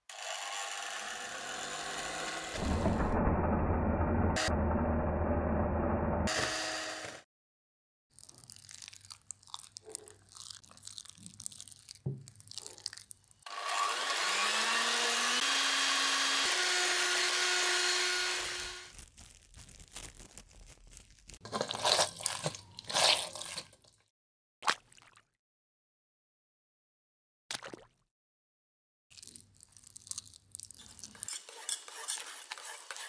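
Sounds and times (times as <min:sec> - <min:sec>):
electric hand mixer whipping: 0:00.0 - 0:03.4, 0:06.0 - 0:07.2, 0:13.5 - 0:18.9.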